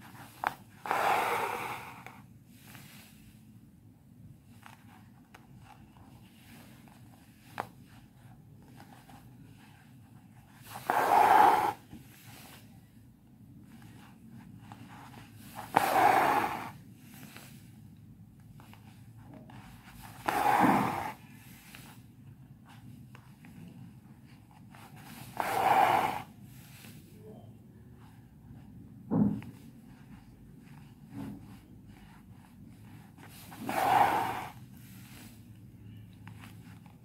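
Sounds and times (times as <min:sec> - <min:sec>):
thread rasping through fabric: 0:19.9 - 0:21.2.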